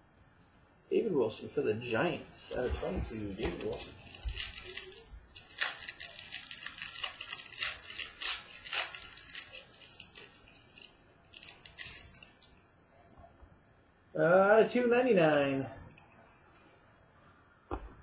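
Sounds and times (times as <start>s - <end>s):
packaging crinkling: 3.1s - 12.6s
small clicks and scrapes: 3.4s - 13.2s.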